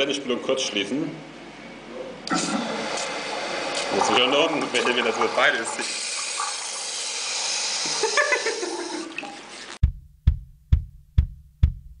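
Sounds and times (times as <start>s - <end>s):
urinal flushing: 2.3s - 9.8s
drum machine beat: 9.8s - 12.0s.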